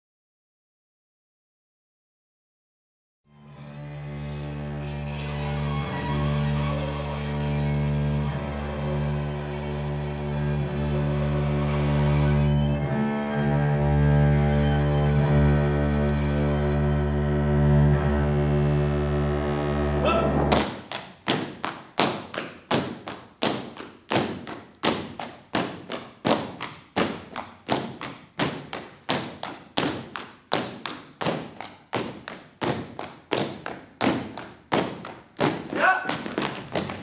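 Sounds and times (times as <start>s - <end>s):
violins accordion and bass chord: 3.3s - 20.6s
feet stamping on stage floor: 20.4s - 37.0s.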